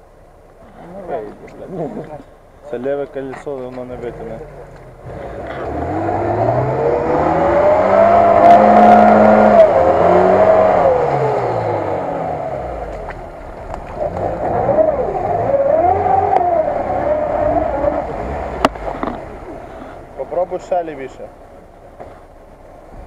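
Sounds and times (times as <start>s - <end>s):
engine revving hard: 5.0s - 12.9s, 14.0s - 19.2s.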